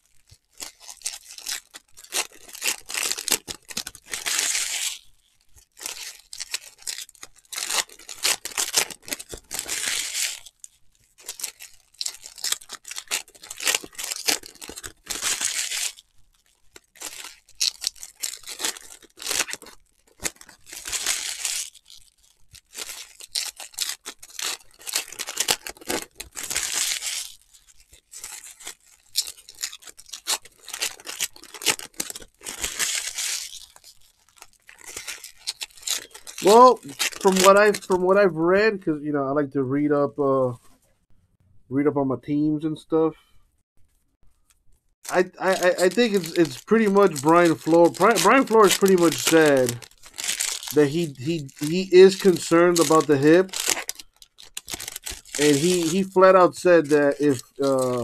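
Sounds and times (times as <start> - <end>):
card wrappers tearing and crinkling: 0.0 - 38.8, 44.4 - 58.0
cards being handled: 35.2 - 38.2, 45.1 - 58.0.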